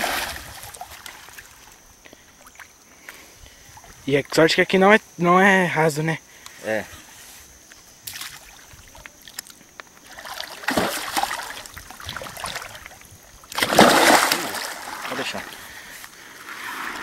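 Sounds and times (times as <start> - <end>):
fish splashing in water: 10.0 - 15.6.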